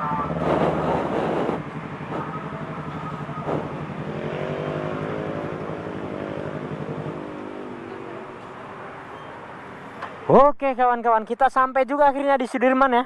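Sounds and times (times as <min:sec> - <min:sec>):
motorcycle engines idling: 0:00.0 - 0:10.3.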